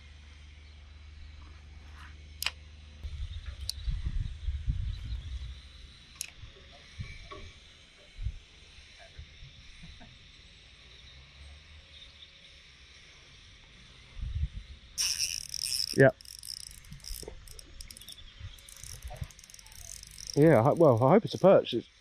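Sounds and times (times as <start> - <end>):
reel clicks: 2.4 - 2.6, 6.1 - 6.4, 15.0 - 21.7
fishing reel drag buzzing: 14.6 - 22.0.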